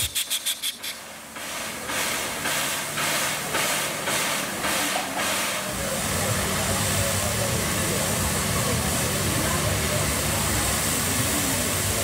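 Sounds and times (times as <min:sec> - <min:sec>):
steam locomotive hissing: 0:00.0 - 0:12.0.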